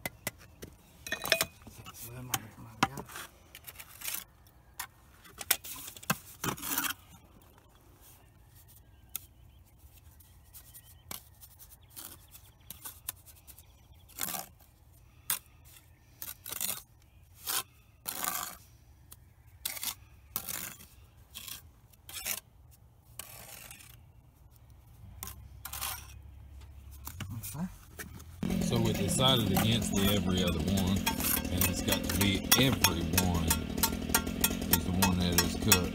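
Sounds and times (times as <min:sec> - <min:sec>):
trowel scraping mortar on bricks: 0:01.3 - 0:04.3, 0:15.3 - 0:18.6, 0:19.6 - 0:22.5, 0:23.1 - 0:24.0, 0:25.2 - 0:26.2, 0:29.0 - 0:33.5.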